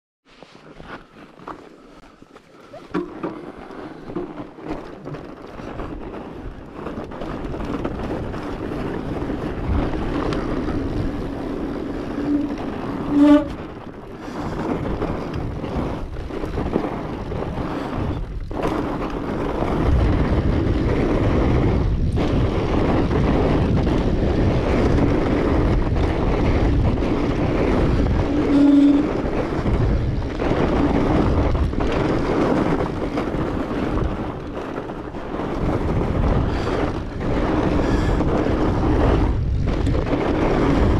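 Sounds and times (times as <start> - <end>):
bike tires rolling over snow: 0.3 - 40.9
wind buffeting microphone: 0.9 - 40.9
whine: 12.0 - 13.6.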